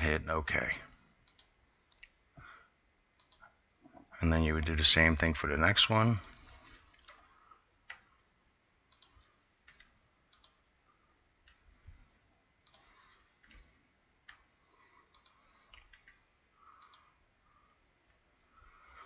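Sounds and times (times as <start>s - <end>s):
mouse and keyboard clicks: 3.2s - 3.4s, 8.9s - 10.6s, 12.6s - 13.6s, 15.1s - 16.2s, 16.8s - 17.1s.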